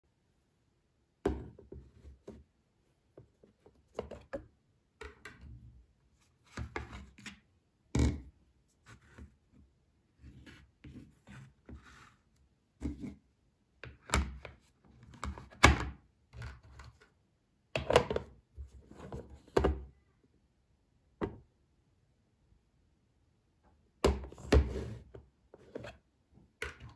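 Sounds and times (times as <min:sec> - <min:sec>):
plastic lid knocking and rubbing: 0:24.0 - 0:26.0.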